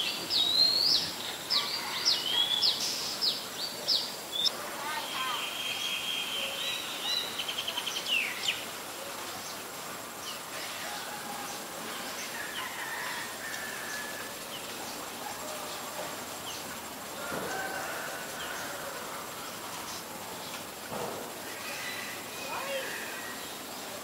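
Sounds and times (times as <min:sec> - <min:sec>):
small birds chirping and whistling: 0:00.0 - 0:08.6
outdoor background noise: 0:00.0 - 0:24.0.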